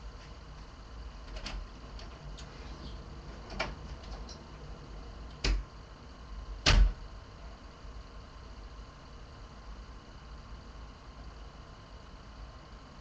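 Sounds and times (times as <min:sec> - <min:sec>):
knocks in the house: 0:06.6 - 0:07.0.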